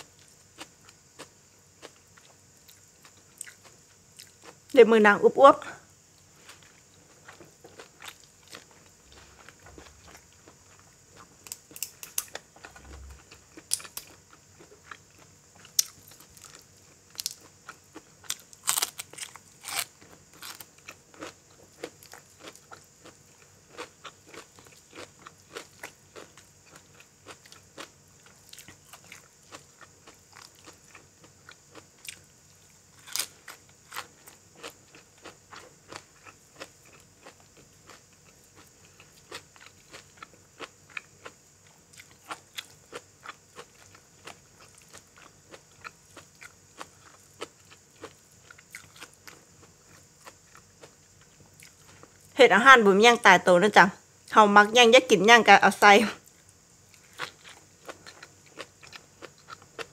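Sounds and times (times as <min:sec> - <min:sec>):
chewing: 0:06.4 - 0:32.2, 0:33.0 - 0:52.3, 0:56.2 - 0:59.9
crisp bites and crunching: 0:18.2 - 0:26.3, 0:33.0 - 0:34.8.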